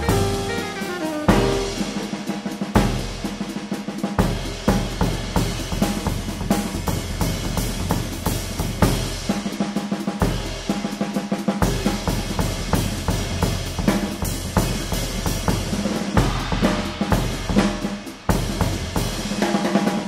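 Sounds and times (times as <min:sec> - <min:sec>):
jazz drum kit playing: 0:00.0 - 0:20.0.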